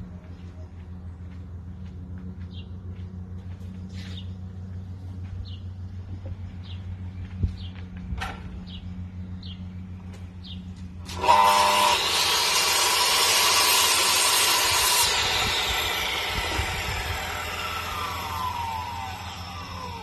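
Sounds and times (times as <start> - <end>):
miter saw motor whine: 10.9 - 20.0
saw blade cutting timber: 11.0 - 20.0.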